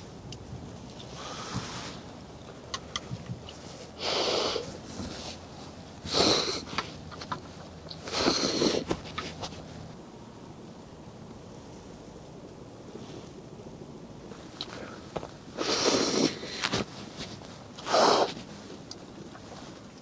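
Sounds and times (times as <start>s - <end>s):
person slurping noodles: 15.6s - 16.6s.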